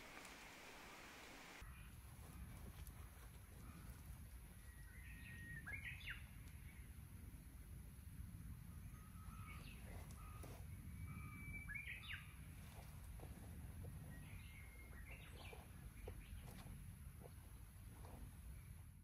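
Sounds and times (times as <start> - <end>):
small birds chirping: 3.6 - 6.9, 8.9 - 19.0.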